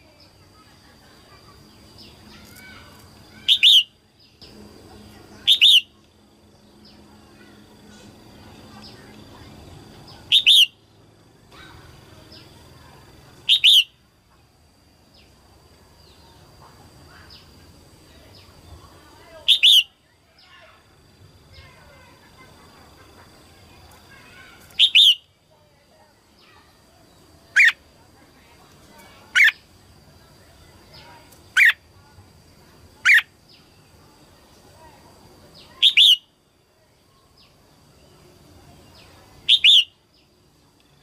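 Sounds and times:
bird warbling calls: 0:02.3 - 0:03.9, 0:05.4 - 0:06.0, 0:10.1 - 0:10.8, 0:13.5 - 0:14.0, 0:19.5 - 0:19.9, 0:24.2 - 0:25.2, 0:27.5 - 0:27.8, 0:29.3 - 0:29.6, 0:31.5 - 0:31.8, 0:33.0 - 0:33.3, 0:35.7 - 0:36.3, 0:39.5 - 0:39.9.

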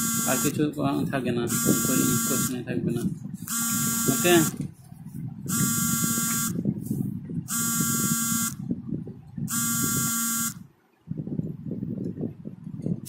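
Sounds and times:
electronic buzzer: 0:00.0 - 0:00.6, 0:01.5 - 0:02.6, 0:03.5 - 0:04.6, 0:05.5 - 0:06.6, 0:07.5 - 0:08.6, 0:09.5 - 0:10.7.

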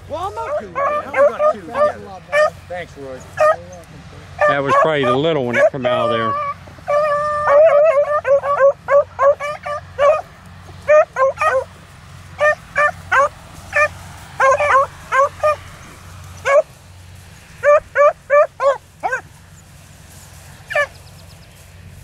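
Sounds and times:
dog yelping barks: 0:00.4 - 0:02.6, 0:03.3 - 0:03.7, 0:04.4 - 0:11.7, 0:12.4 - 0:15.6, 0:16.4 - 0:16.7, 0:17.6 - 0:19.3, 0:20.7 - 0:21.0.

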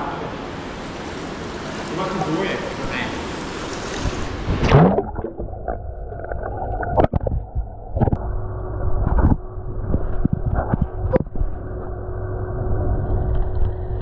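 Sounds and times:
microphone plunging into water: 0:04.5 - 0:11.6
sharp knocks underwater: 0:04.6 - 0:08.2.

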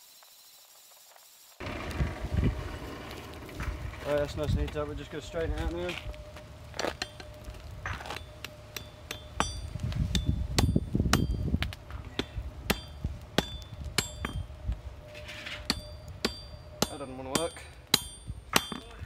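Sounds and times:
hammer striking steel on anvil: 0:07.0 - 0:14.4, 0:15.6 - 0:19.0.

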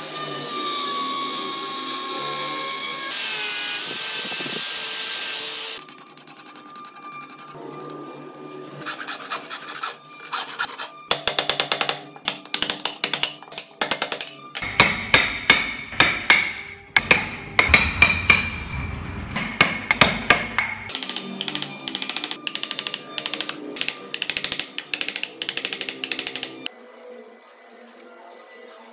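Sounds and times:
file and chisel rasping wood: 0:05.8 - 0:07.6, 0:08.8 - 0:17.8.

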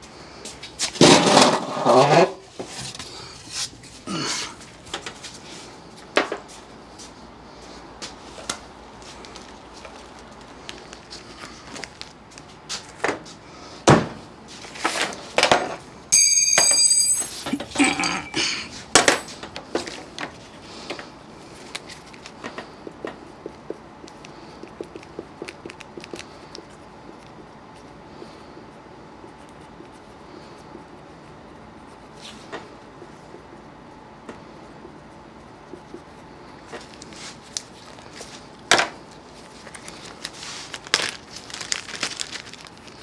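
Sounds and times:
tools and metal parts clinking: 0:15.4 - 0:19.9.

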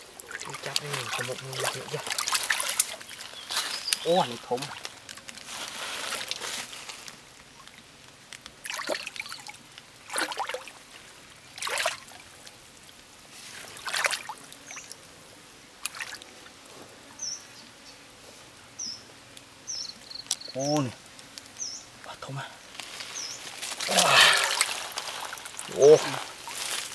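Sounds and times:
hands splashing in muddy water: 0:00.3 - 0:03.2, 0:11.6 - 0:12.1, 0:13.8 - 0:14.4, 0:23.8 - 0:26.8.

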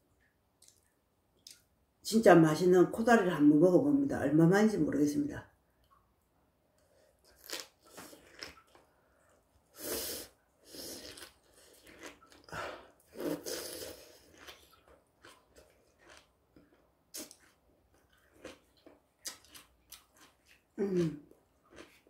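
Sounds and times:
chewing crunchy food: 0:07.2 - 0:09.4, 0:10.8 - 0:22.0
person slurping: 0:09.7 - 0:14.5.

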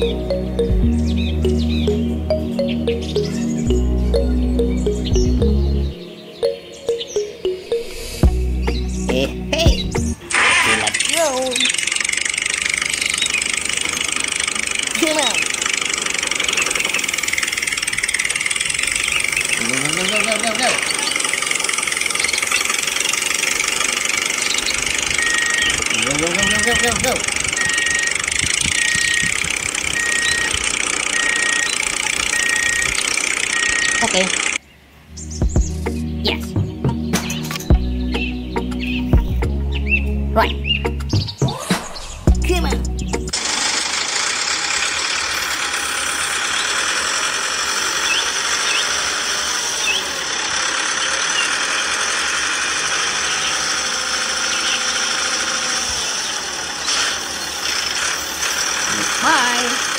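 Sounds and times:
tractor engine running: 0:00.0 - 0:06.0, 0:08.0 - 0:34.6, 0:42.3 - 0:59.9
small electric motor whirring: 0:10.2 - 0:34.6, 0:43.3 - 0:59.9
short high beeps: 0:25.2 - 0:34.5.

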